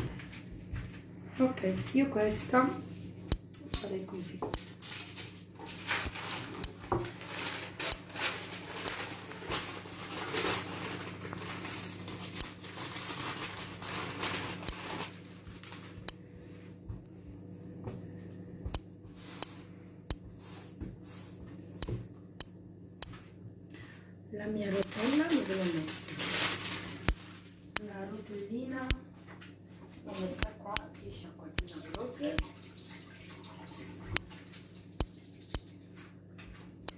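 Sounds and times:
low steady hum: 0.0 - 33.0
baking paper rustling: 4.7 - 16.0, 24.8 - 27.7.

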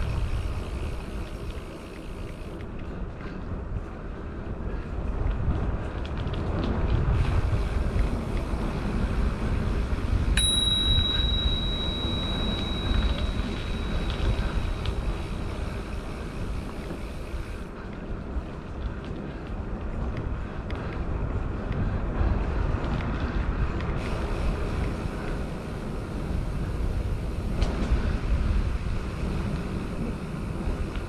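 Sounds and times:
wind and tyres rumbling: 0.0 - 31.0
bicycle bell ding: 10.4 - 14.7.

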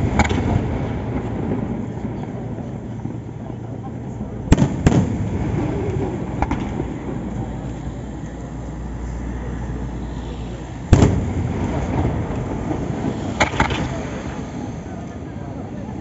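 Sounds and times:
firework bang with rumbling echo: 0.0 - 3.4, 4.4 - 7.4, 10.8 - 14.6.

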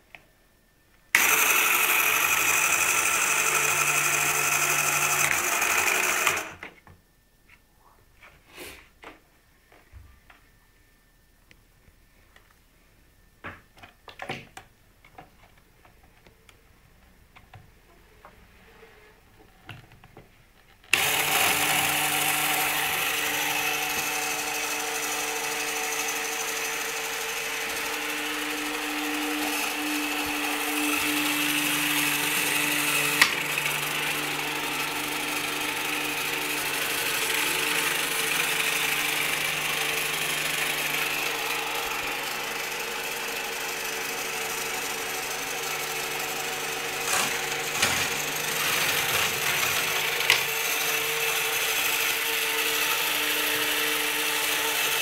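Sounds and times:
small electric motor whining: 1.2 - 6.6, 20.9 - 55.0.

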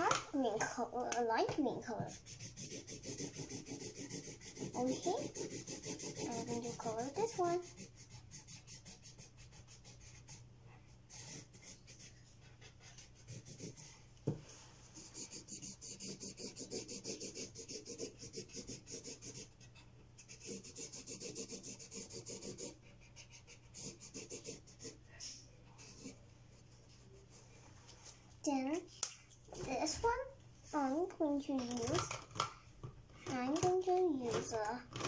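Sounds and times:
marker scribbling on paper: 1.9 - 10.4, 11.1 - 14.0, 14.9 - 27.4.

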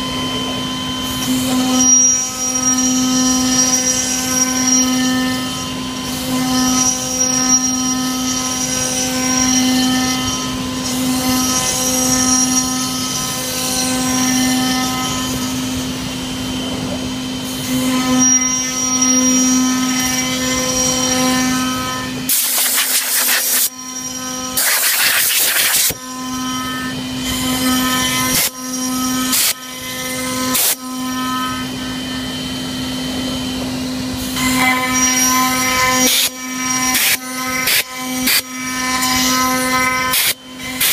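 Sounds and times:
router spindle whine: 0.0 - 40.9.

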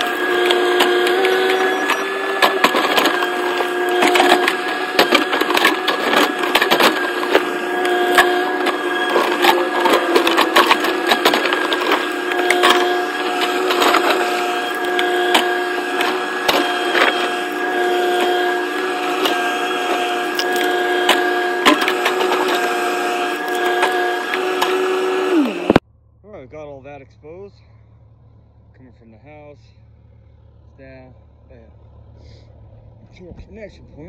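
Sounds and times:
sharp clicks and knocks: 0.0 - 24.8
bucket scraping through dirt: 0.0 - 25.7
excavator hydraulic whine: 0.0 - 25.9.

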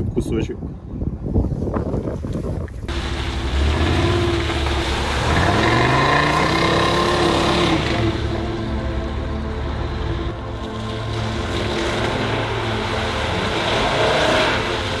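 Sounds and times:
car engine revving: 2.9 - 15.0.

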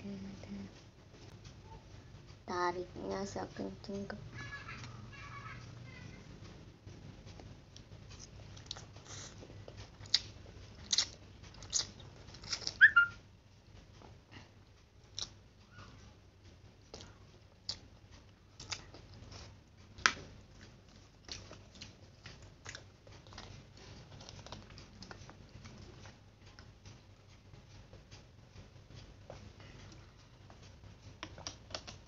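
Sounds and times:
person chewing noodles: 7.8 - 13.1, 15.0 - 15.4, 16.8 - 27.4, 29.2 - 32.0.

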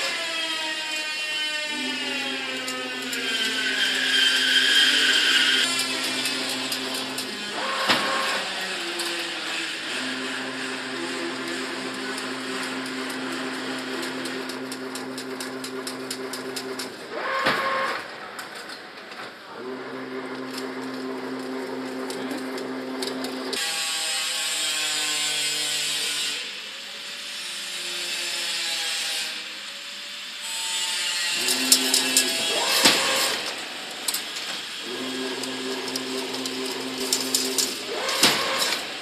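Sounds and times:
machine motor hum: 1.7 - 18.0, 19.5 - 23.6, 31.3 - 39.0
hissy mechanical noise: 1.7 - 23.6, 30.2 - 39.0
rapid mechanical clicking: 2.6 - 8.4, 9.9 - 18.7, 19.7 - 23.6, 31.4 - 39.0.

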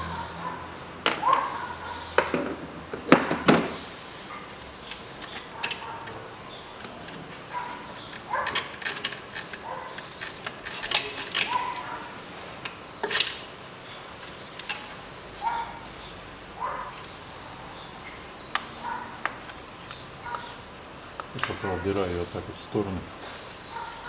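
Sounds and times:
short squeaks: 4.3 - 12.0.

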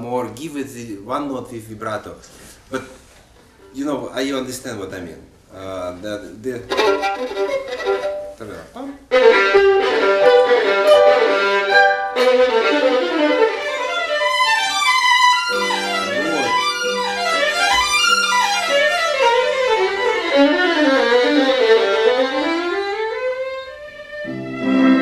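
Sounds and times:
solo violin playing: 6.7 - 25.0.

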